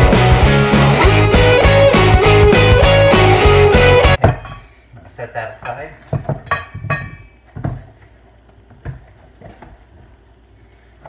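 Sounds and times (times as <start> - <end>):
kitchen items knocking on countertop: 4.2 - 4.6, 6.1 - 7.8
metallic ring: 6.5 - 7.4.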